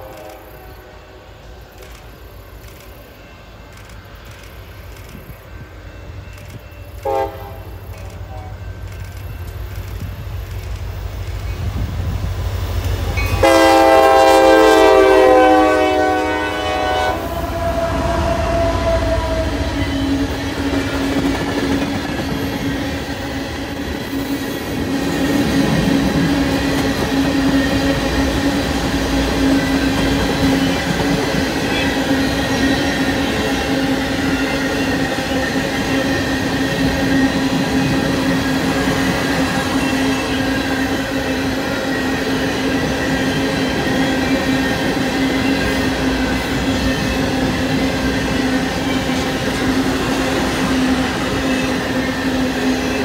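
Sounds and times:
locomotive horn: 0.0s - 1.1s, 6.9s - 8.8s, 13.2s - 20.8s, 31.6s - 32.2s
train wheels clattering: 18.5s - 53.0s.

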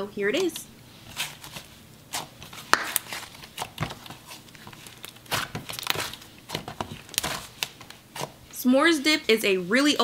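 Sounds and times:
slime squishing with sticky clicks: 2.1s - 8.4s.

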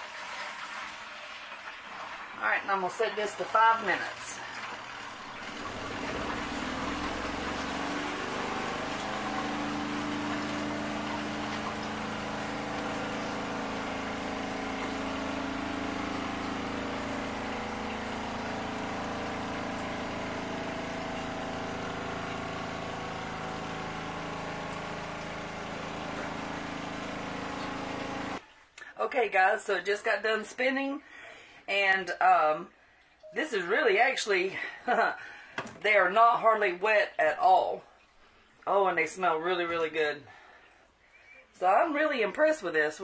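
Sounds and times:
spin-dryer motor humming: 0.0s - 28.4s.

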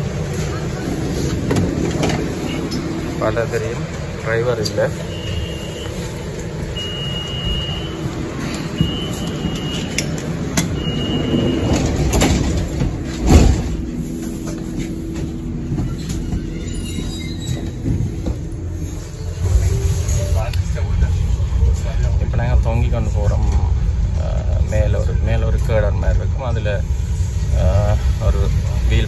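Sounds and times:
monorail hum and rumble: 0.0s - 29.0s
short high beeps: 6.8s - 8.0s
thump: 13.2s - 13.8s.

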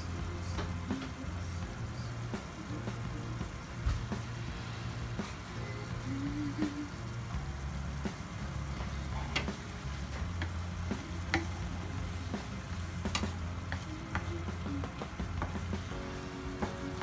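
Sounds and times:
food sizzling in a frying pan: 0.2s - 17.0s
spatula tapping and scraping pan: 10.2s - 16.1s.

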